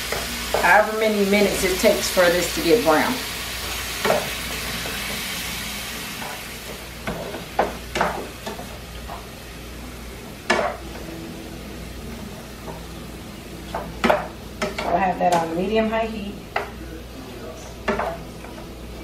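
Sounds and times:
chicken sizzling in oil: 0.0s - 14.8s.

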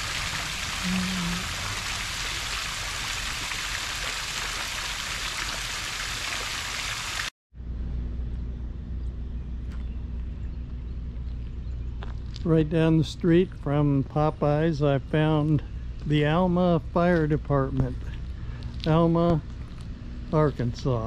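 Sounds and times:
fountain water splashing: 0.0s - 7.3s
low steady rumble: 7.6s - 21.0s.

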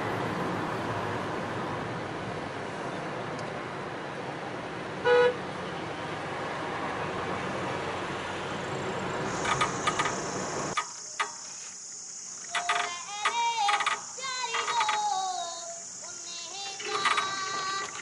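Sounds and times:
vehicle road noise: 0.0s - 15.2s, 15.8s - 18.0s
vehicle horn toot: 5.0s - 5.4s
clicks: 9.4s - 11.6s, 12.4s - 15.1s, 16.7s - 18.0s.

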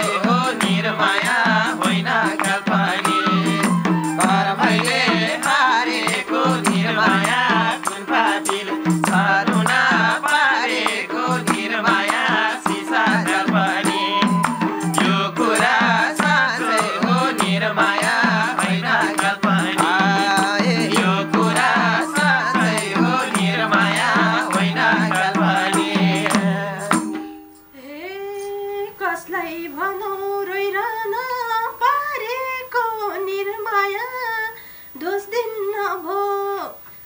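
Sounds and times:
woman singing unaccompanied: 0.0s - 27.0s, 27.7s - 36.8s
hand drum beat: 0.0s - 27.5s
harmonium drone: 0.0s - 27.7s
jingle tambourine: 0.0s - 27.7s.

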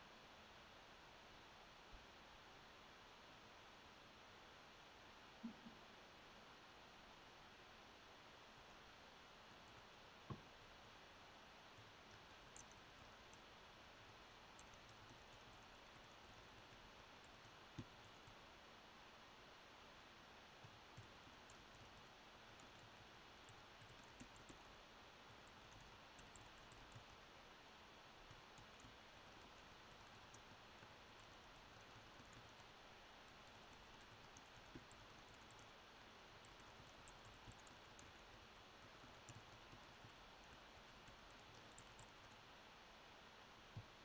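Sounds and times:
typing on laptop keyboard: 11.8s - 13.5s, 14.5s - 18.4s, 20.6s - 27.2s, 28.2s - 35.8s, 36.4s - 42.4s.

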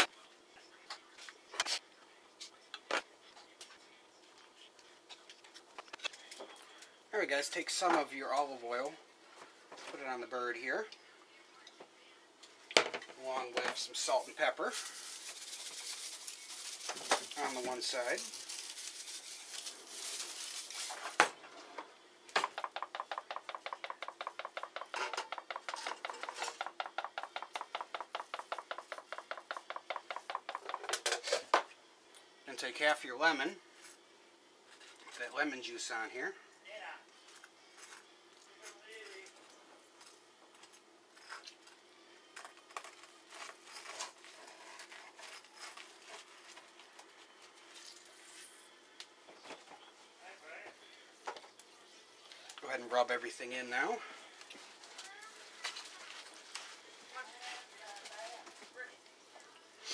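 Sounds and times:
salt sprinkling with a light hiss: 14.2s - 21.1s
pepper tin rattling: 14.3s - 21.1s.

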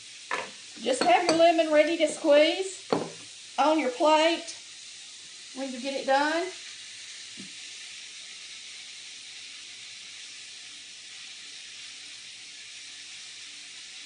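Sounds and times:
fish frying in a pan: 0.0s - 14.0s.

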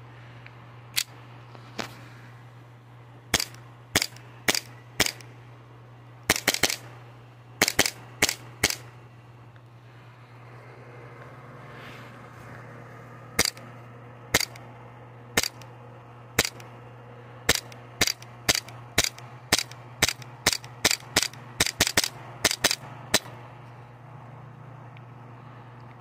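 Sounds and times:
airsoft pistol shots popping: 3.3s - 5.3s, 6.3s - 6.9s, 7.6s - 8.9s, 15.4s - 15.6s, 17.5s - 23.3s.

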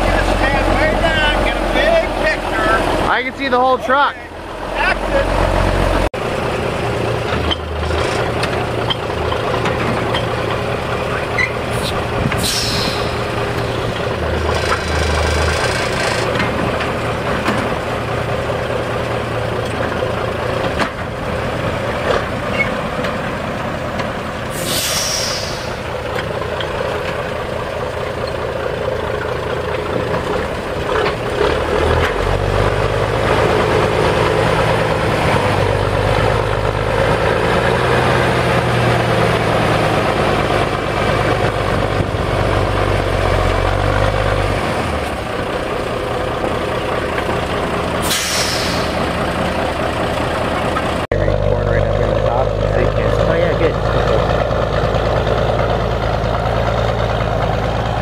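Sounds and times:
truck engine running: 0.0s - 58.0s
air brakes hissing: 11.7s - 13.3s, 24.5s - 25.9s, 48.0s - 49.1s.

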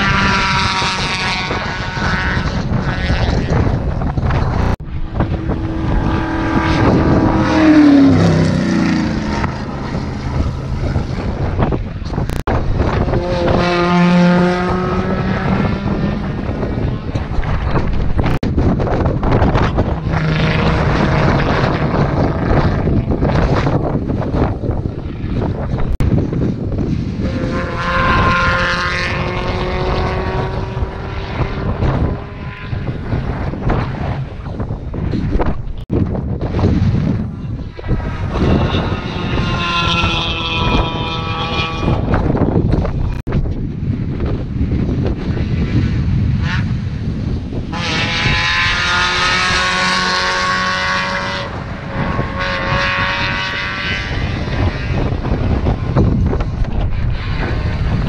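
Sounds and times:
wind buffeting microphone: 0.0s - 58.0s
race car engine passing: 4.4s - 17.6s, 18.2s - 25.6s, 26.8s - 34.4s, 38.0s - 42.8s, 45.8s - 56.3s.

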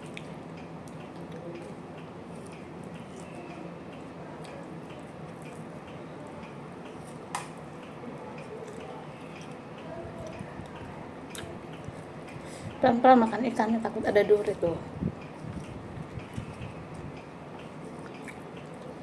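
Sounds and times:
chewing with mouth closed: 0.0s - 5.7s, 8.3s - 9.6s, 10.2s - 12.1s, 15.2s - 19.0s
steady background noise: 0.0s - 19.0s.

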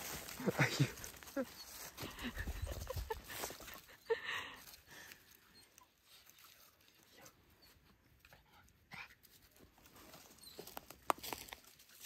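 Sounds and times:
dry leaves rustling and crackling: 0.0s - 3.8s, 9.7s - 12.0s.

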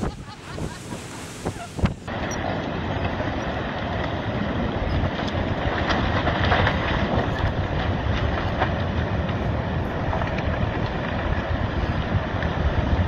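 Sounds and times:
landslide deep roar: 0.0s - 13.0s.

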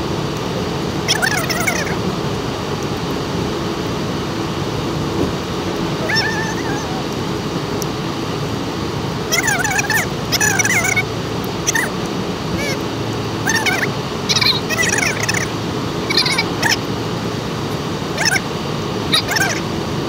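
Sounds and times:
car road and engine noise: 0.0s - 20.0s
high-pitched wavering whines: 9.3s - 16.9s.

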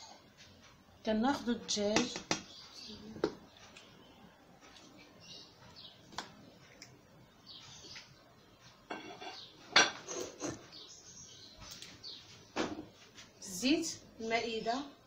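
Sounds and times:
plate and pot clinking: 8.9s - 10.6s.

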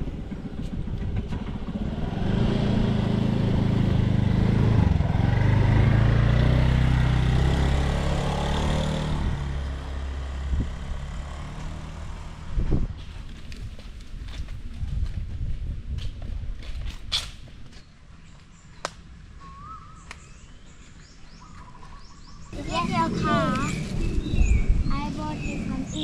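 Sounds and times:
scooter engine passing: 0.0s - 13.4s, 21.3s - 26.0s.

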